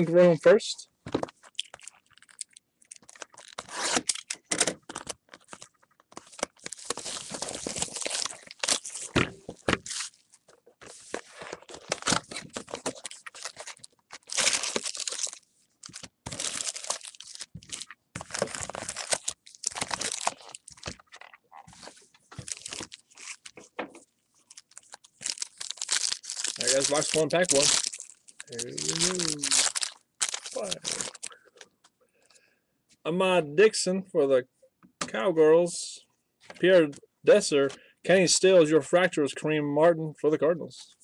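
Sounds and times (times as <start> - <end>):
foil packs crinkling and rustling: 1.6 - 4.2, 4.9 - 9.2, 10.9 - 23.6, 24.4 - 31.4.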